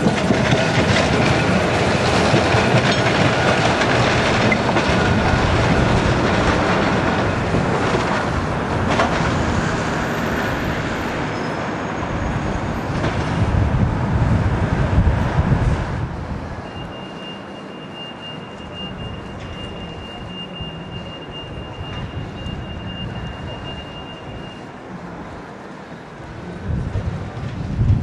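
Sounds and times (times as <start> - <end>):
tram wheels rolling on rails: 0.0 - 28.0.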